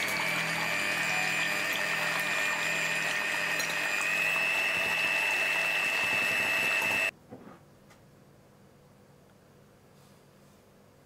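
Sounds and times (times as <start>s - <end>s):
electric hand mixer whine: 0.0s - 7.1s.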